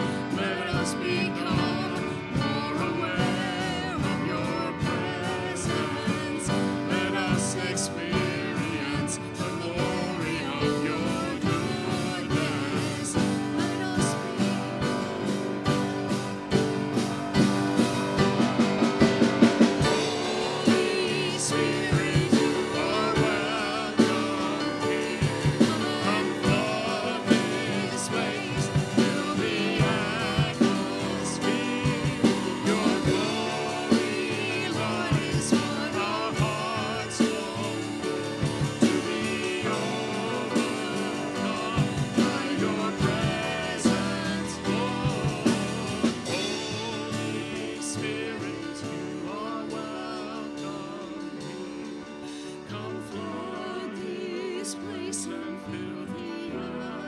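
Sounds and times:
person singing worship song: 0.0s - 15.4s, 17.0s - 57.0s
steady drum beat: 0.0s - 54.6s
band accompaniment: 0.0s - 57.0s.

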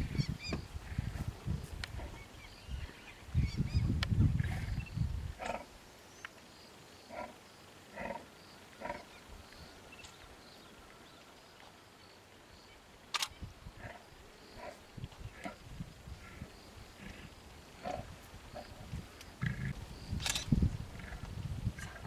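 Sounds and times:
sharp click: 20.2s - 20.6s.

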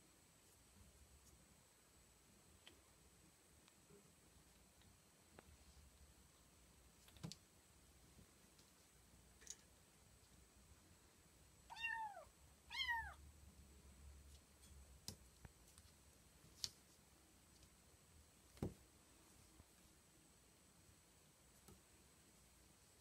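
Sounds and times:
kitten meowing: 11.7s - 13.2s.

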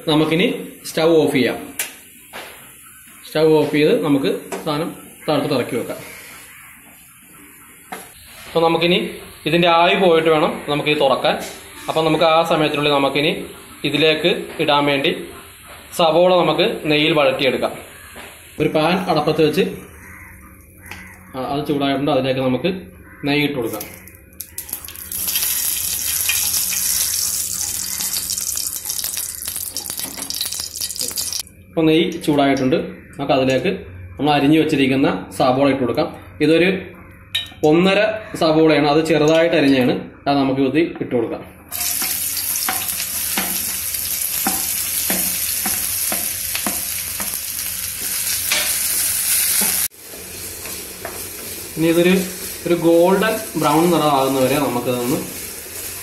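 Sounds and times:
ghee sizzling in a frying pan: 23.8s - 31.4s, 41.7s - 56.0s
wooden spatula tapping: 44.4s - 47.4s.

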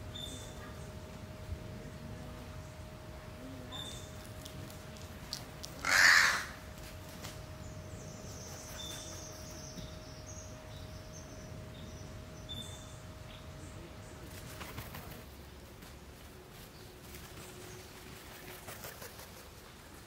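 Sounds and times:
crow cawing: 5.8s - 6.6s.

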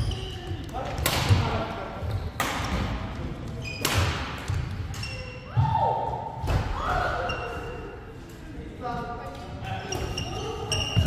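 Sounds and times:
shoes squealing on wooden floor: 9.8s - 11.0s.

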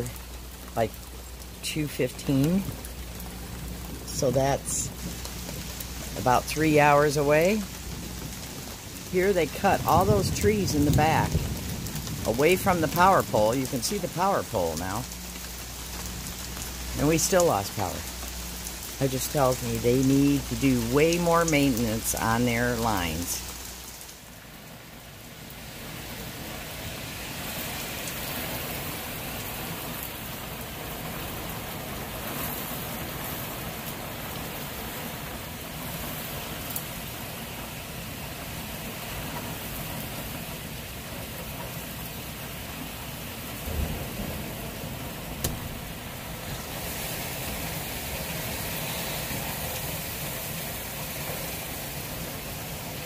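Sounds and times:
heavy rain pouring: 0.0s - 53.0s
low thump: 45.4s - 45.9s.

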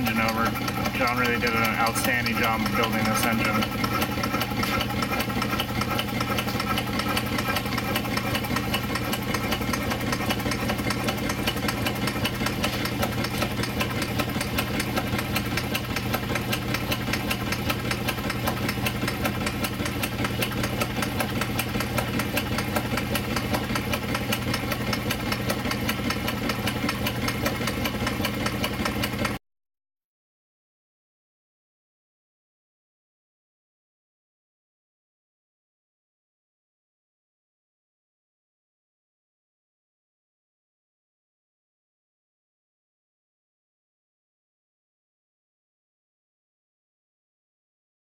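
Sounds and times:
steam engine exhaust beats: 0.0s - 29.4s
valve gear clattering: 0.0s - 29.4s.

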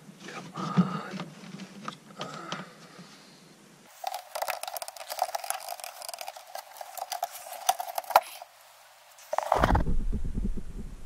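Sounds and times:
plastic and metal parts clattering: 3.9s - 8.5s
sharp knocks: 9.6s - 11.0s.

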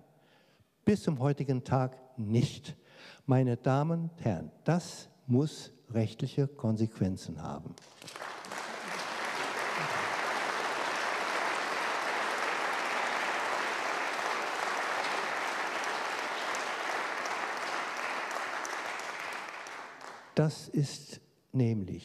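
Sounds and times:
audience applauding: 7.8s - 20.4s.

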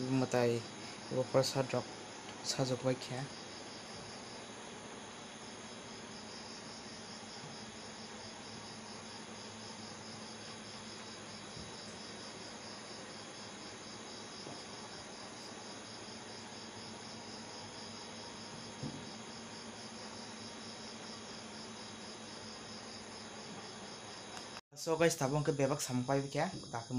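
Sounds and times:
crickets chirping: 0.0s - 26.9s
soft knock: 18.8s - 19.1s.

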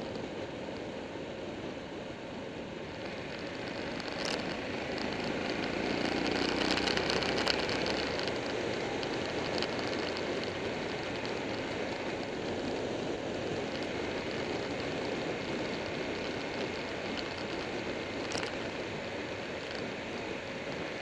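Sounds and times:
wind and road noise: 0.0s - 21.0s
motorcycle engine: 2.8s - 21.0s
short crackles: 2.9s - 21.0s.

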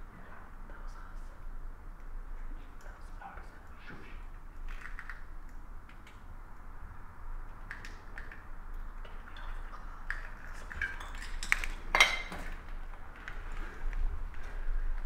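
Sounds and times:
clinks of hard objects: 10.6s - 12.6s.

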